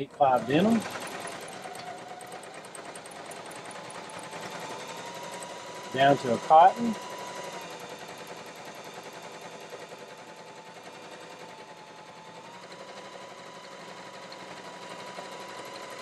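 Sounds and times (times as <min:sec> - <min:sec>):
sewing machine stitching: 0:00.0 - 0:11.8.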